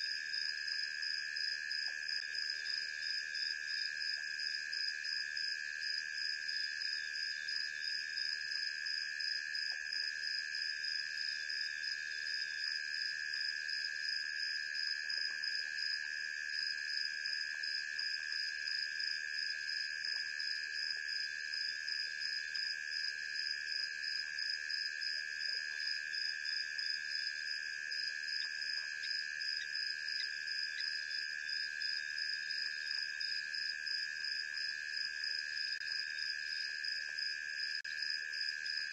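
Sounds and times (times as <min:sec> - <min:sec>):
crickets trilling: 0:21.2 - 0:38.9.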